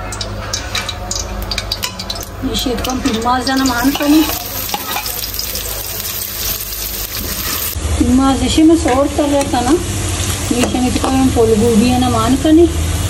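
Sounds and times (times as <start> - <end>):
onions sizzling in hot oil: 1.1 - 7.8, 9.1 - 12.3
metal ladle scraping pan: 2.8 - 7.8.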